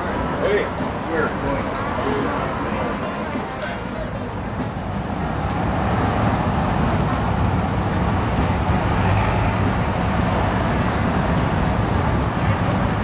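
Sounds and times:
engine running steadily: 0.0 - 13.0.

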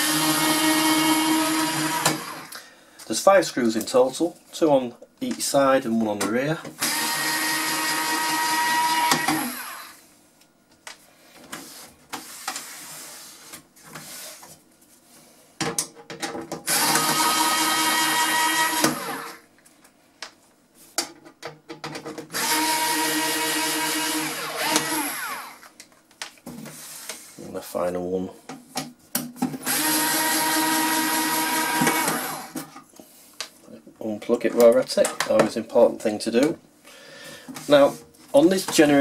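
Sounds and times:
electric screwdriver running: 0.0 - 2.5, 6.8 - 10.0, 16.7 - 19.4, 22.4 - 25.7, 29.6 - 32.6.

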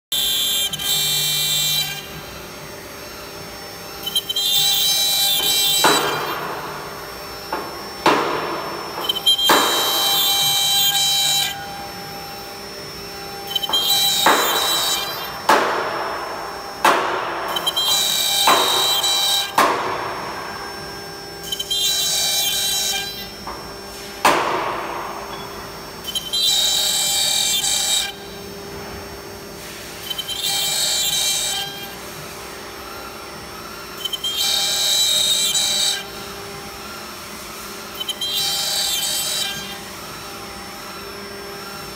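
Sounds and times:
router bit cutting wood: 0.1 - 41.9
router spindle whine: 0.1 - 41.9
sharp knocks: 13.7 - 20.4.

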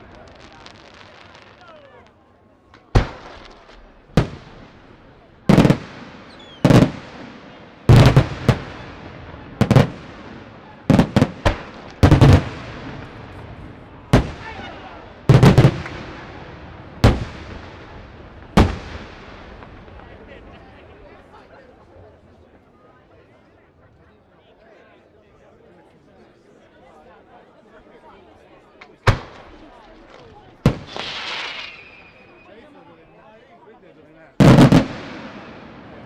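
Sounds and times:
fireworks bangs with echo: 0.0 - 20.5, 28.8 - 32.5, 34.4 - 36.0.

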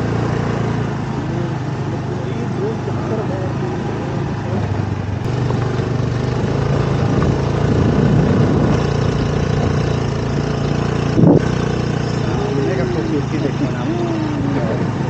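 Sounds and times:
small motorbike engine running: 0.0 - 15.0
wind rumble on microphone: 4.6 - 13.6, 14.2 - 15.0.

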